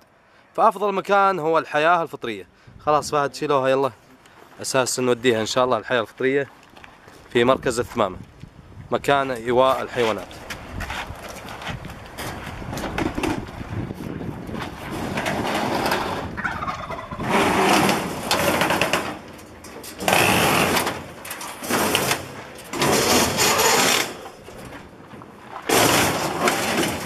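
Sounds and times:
metal cage scraping and rattling: 14.7s - 16.4s, 17.2s - 24.8s, 25.7s - 27.0s.

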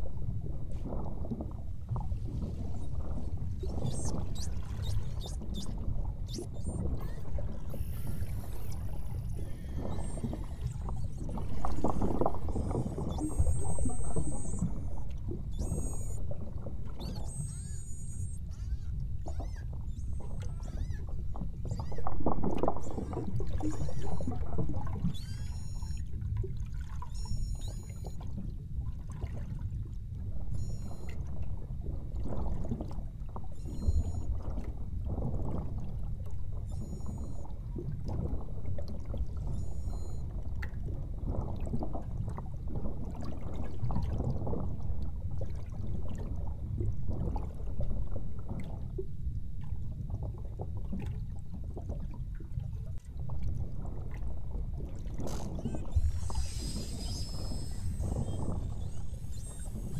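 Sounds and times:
whale clicking: 1.4s - 26.1s, 27.0s - 28.3s, 36.7s - 37.5s, 55.0s - 59.9s
underwater rushing water: 2.1s - 18.4s, 53.2s - 59.9s
whales chirping and squealing: 3.6s - 16.2s, 17.0s - 26.1s, 27.1s - 28.1s, 30.6s - 31.0s, 33.6s - 34.2s, 36.7s - 37.4s, 39.5s - 40.2s, 55.2s - 59.9s.

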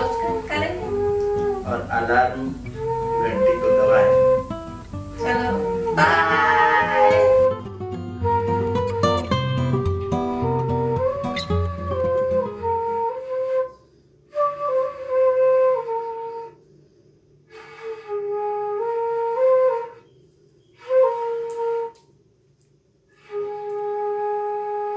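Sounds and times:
acoustic guitar strumming: 0.0s - 13.1s
flute melody: 0.0s - 16.7s, 17.5s - 22.2s, 23.1s - 24.9s.

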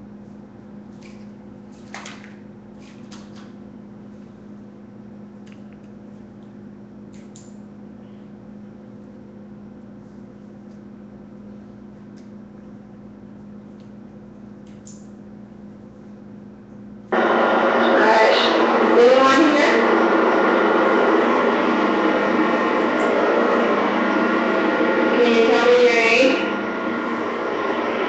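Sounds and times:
low hum: 16.7s - 28.0s
loud rush of noise: 17.1s - 28.0s.

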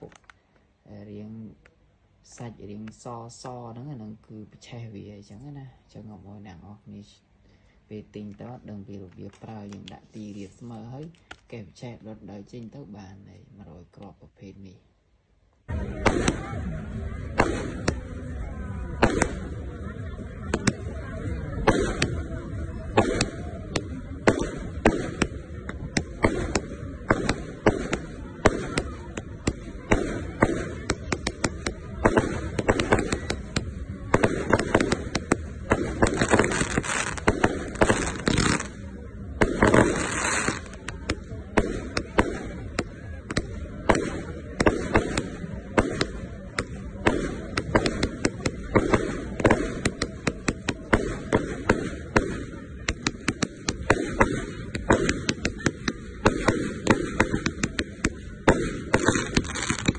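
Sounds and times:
firework launch thumps and bangs: 22.9s - 59.9s.

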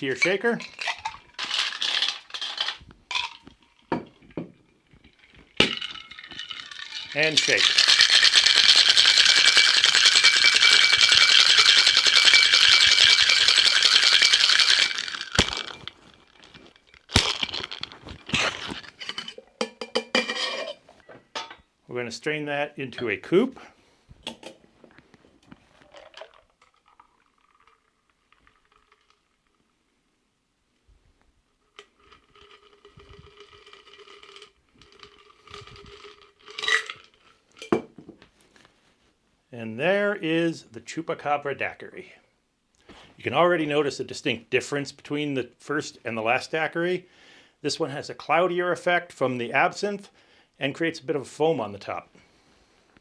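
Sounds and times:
ice rattling in cocktail shaker: 0.1s - 4.0s, 5.0s - 20.8s, 25.7s - 29.4s, 31.8s - 37.8s
metal shaker knocks and clinks: 5.0s - 15.9s
liquid pouring into glass: 25.8s - 29.4s.

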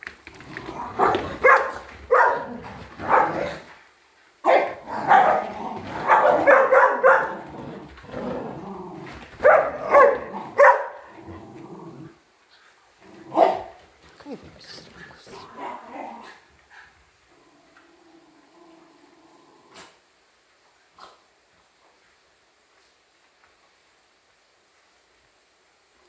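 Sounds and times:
dogs barking: 0.9s - 3.5s, 4.4s - 7.5s, 9.4s - 11.1s, 13.3s - 13.8s.

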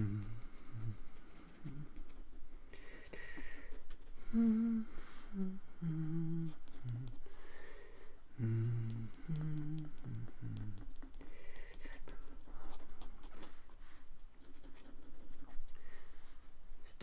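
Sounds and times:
man humming slow tune: 0.0s - 1.0s, 4.2s - 7.2s, 8.4s - 10.8s.

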